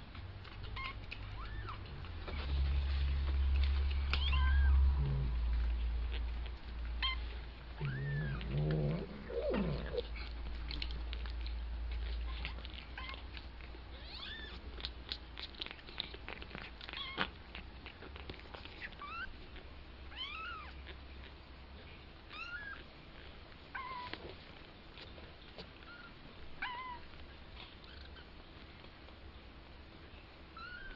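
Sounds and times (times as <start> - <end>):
kittens mewing: 4.0 - 11.3
lower louder kitten call: 4.1 - 5.4, 7.8 - 10.0.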